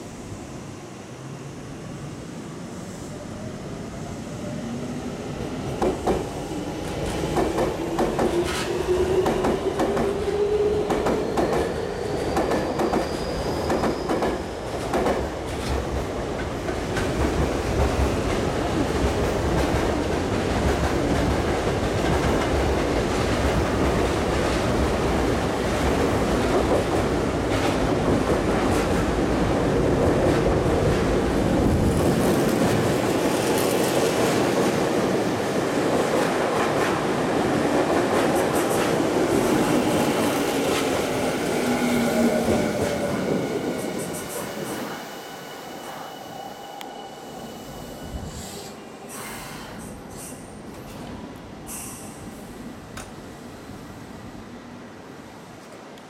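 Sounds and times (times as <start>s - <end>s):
train rushing past: 0.0s - 53.9s.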